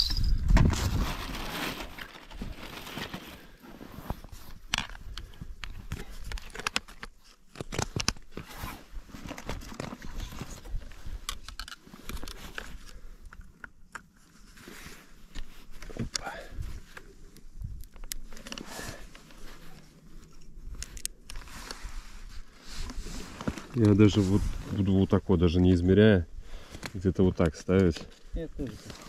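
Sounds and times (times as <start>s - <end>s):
rustling and crinkling: 0.0s - 29.0s
small clicks and crackles: 4.2s - 21.9s.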